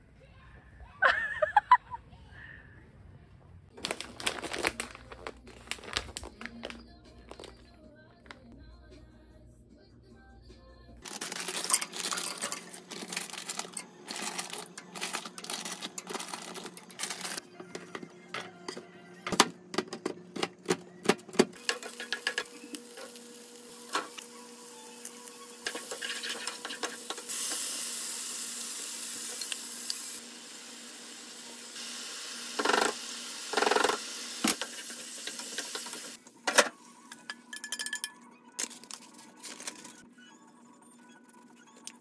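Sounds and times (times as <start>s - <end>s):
frying pan sizzling: 11.0s - 18.1s, 21.5s - 36.2s
spatula stirring and scraping: 11.1s - 18.0s, 25.6s - 27.3s.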